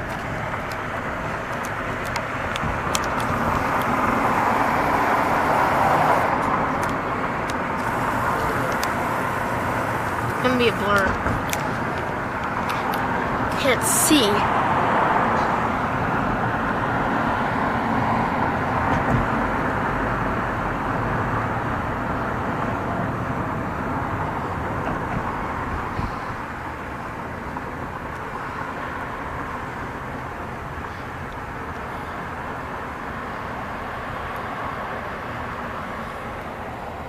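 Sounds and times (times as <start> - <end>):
tyre and wind noise: 0.0 - 13.6, 24.0 - 28.3.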